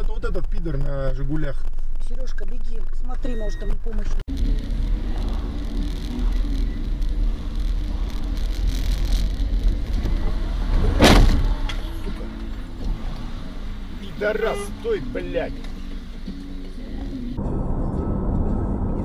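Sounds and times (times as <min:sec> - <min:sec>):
car road and engine rumble: 0:00.0 - 0:19.0
sudden loud bang: 0:10.0 - 0:12.0.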